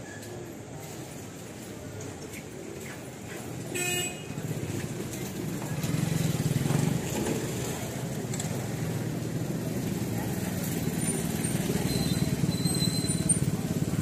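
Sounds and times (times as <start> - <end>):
vehicle engine rumbling: 4.3 - 14.0.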